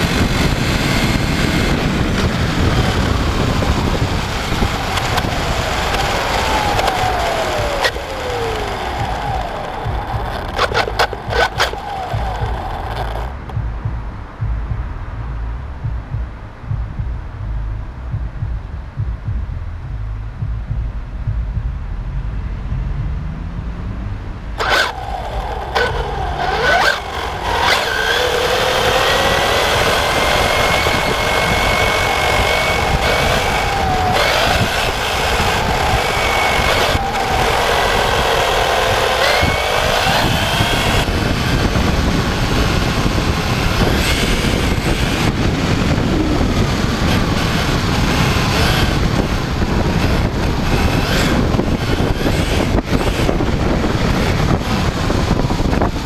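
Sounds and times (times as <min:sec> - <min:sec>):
electric motor whine: 0:00.0 - 0:13.6, 0:24.6 - 0:56.0
tyre and wind noise: 0:00.0 - 0:56.0
sharp clicks: 0:04.8 - 0:13.6, 0:24.6 - 0:41.1.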